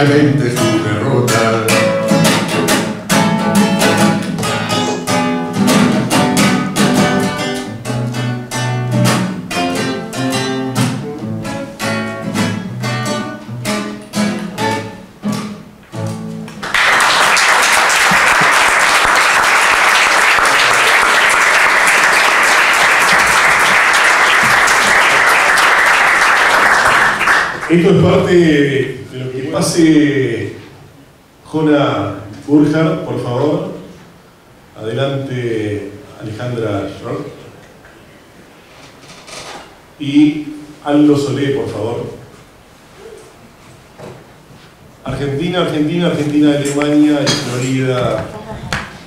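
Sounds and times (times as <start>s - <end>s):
acoustic guitar plucked notes: 0.0s - 16.6s
audience applause: 16.6s - 27.8s.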